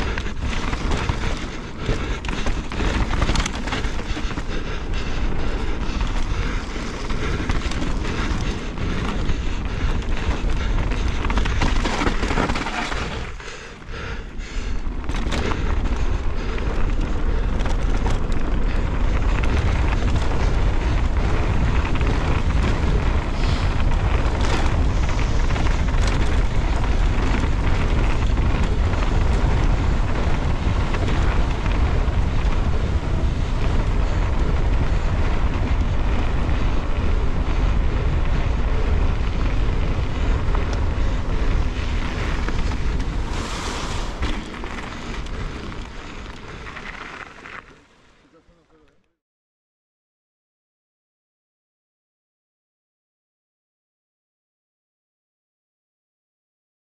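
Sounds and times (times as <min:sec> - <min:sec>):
bike knocks and rattles: 0:00.0 - 0:13.6, 0:14.4 - 0:47.6
wind buffeting microphone: 0:00.0 - 0:47.6
tyres on loose dirt: 0:00.0 - 0:49.0.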